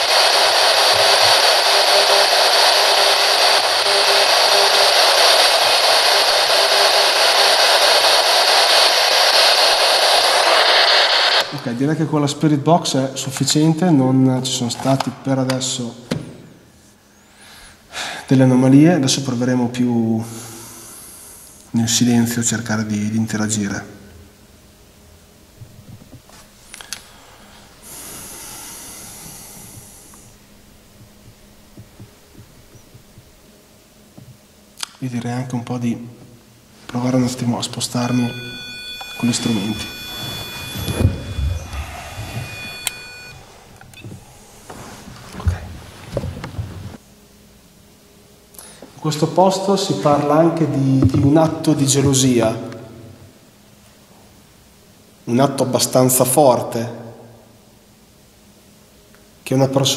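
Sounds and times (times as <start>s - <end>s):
radio static hiss: 0.0s - 16.0s, 18.0s - 23.9s, 25.7s - 47.2s.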